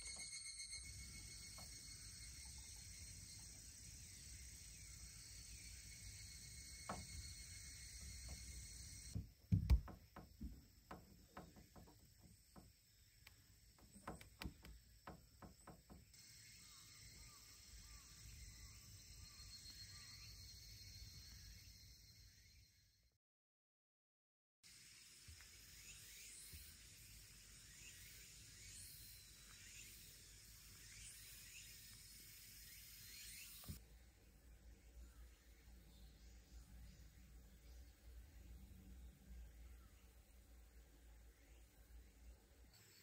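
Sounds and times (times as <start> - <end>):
high-pitched chirring: 0.0 - 3.7
sharp knocks and clicks: 9.1 - 16.1.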